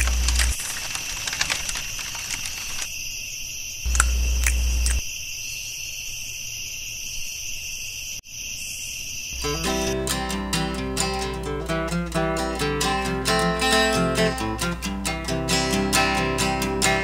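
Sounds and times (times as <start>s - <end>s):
campfire crackles: 0.0s - 2.9s
crickets chirping: 0.0s - 10.0s.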